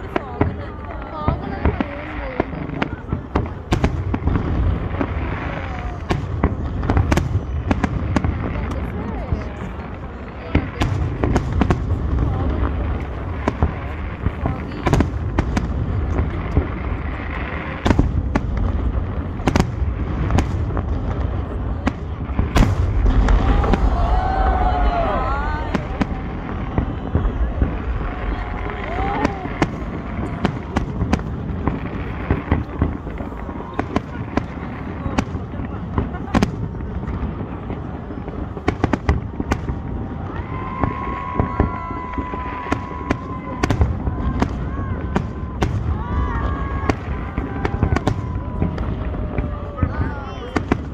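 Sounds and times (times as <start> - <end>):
fireworks bursting with sharp bangs: 0.0 - 50.9
steady low rumble: 18.2 - 33.4.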